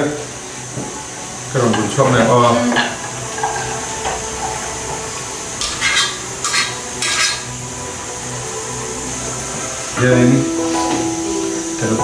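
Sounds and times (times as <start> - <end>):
metal cookware scraping: 1.6 - 7.6.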